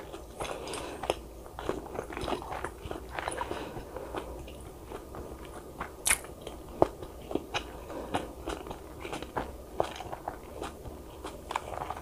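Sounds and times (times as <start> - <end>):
person chewing crunchy food: 0.0 - 12.0.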